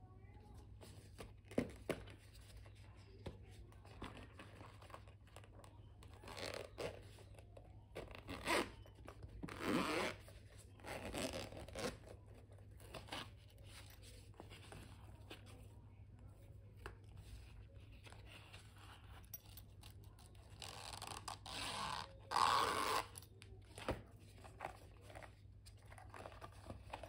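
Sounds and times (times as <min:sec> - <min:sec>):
zipper being unzipped: 0:06.1 - 0:07.1, 0:08.1 - 0:12.1, 0:20.5 - 0:23.3.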